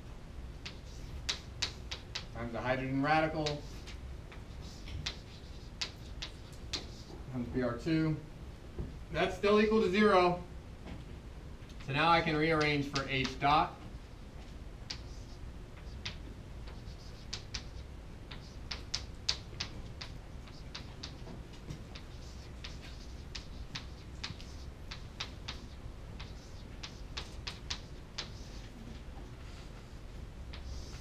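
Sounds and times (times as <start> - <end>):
low steady hum: 0.0 - 31.0
chalk scratching on chalkboard: 0.7 - 2.3, 3.1 - 7.3, 14.9 - 28.8, 30.6 - 31.0.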